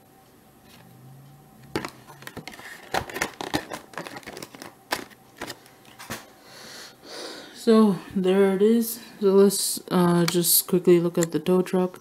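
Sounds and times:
plastic packaging crinkling: 0:01.8 - 0:05.7.

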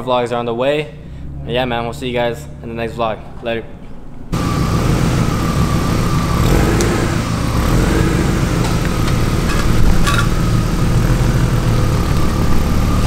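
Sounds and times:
car engine running at low speed: 0:04.3 - 0:13.0.

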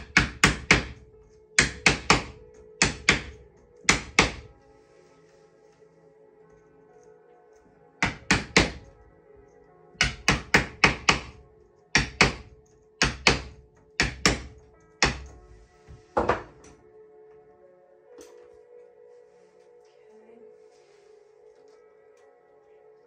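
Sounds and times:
mallet knocking on wooden wedge: 0:00.0 - 0:01.0, 0:01.6 - 0:04.5, 0:08.0 - 0:08.9, 0:10.0 - 0:11.4, 0:12.0 - 0:15.4
background music: 0:00.0 - 0:23.0.

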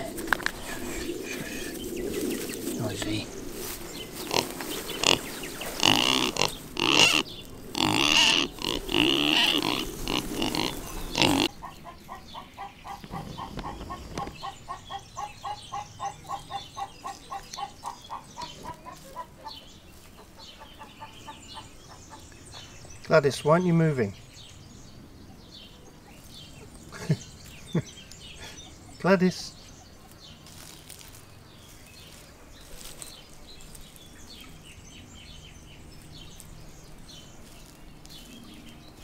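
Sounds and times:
pigs calling: 0:04.1 - 0:13.0.

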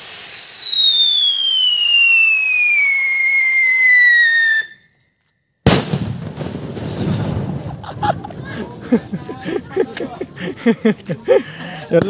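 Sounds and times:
firecracker whistle screeching: 0:00.0 - 0:05.0
firecracker bang: 0:05.6 - 0:09.7.

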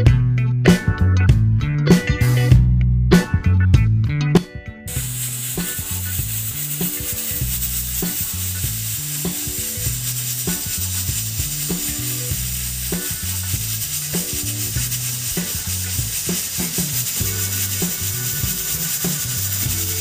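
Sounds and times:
music with low bass line: 0:00.0 - 0:20.0
high sizzling hiss: 0:04.9 - 0:20.0.

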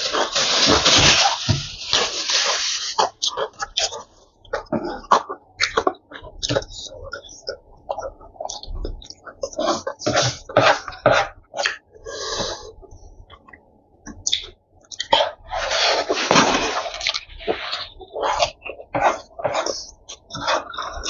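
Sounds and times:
mouth smacks and chewing: 0:13.3 - 0:15.2.

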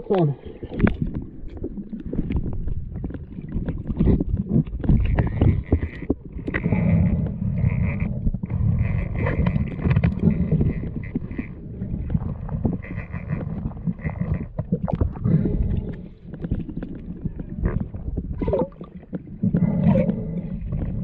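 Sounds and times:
underwater rushing rumble: 0:00.0 - 0:21.0
underwater clicks and knocks: 0:00.1 - 0:21.0.

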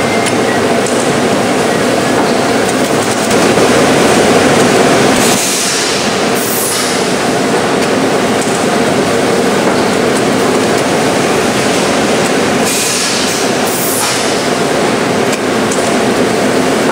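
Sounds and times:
packaging machine running: 0:00.0 - 0:16.9
hiss: 0:05.2 - 0:07.2, 0:12.6 - 0:14.6.

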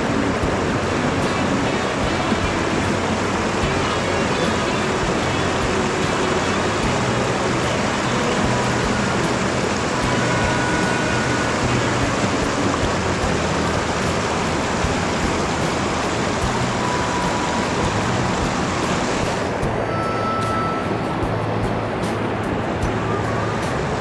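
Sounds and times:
stream rushing over rocks: 0:00.0 - 0:24.0.

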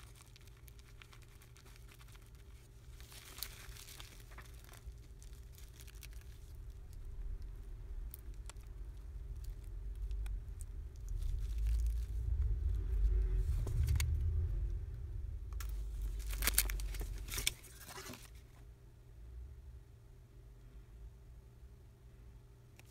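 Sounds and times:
clicks rustles and crinkles: 0:00.0 - 0:14.2, 0:15.6 - 0:18.6
low rumble: 0:00.0 - 0:18.3.

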